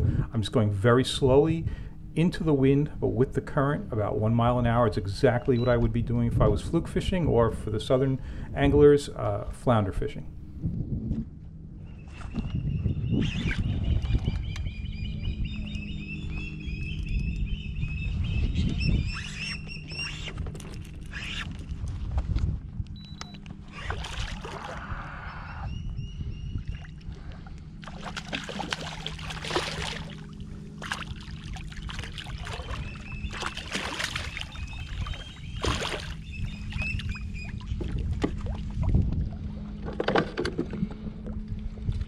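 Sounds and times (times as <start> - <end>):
fish splashing and thrashing: 23.6 - 25.0, 26.7 - 41.2.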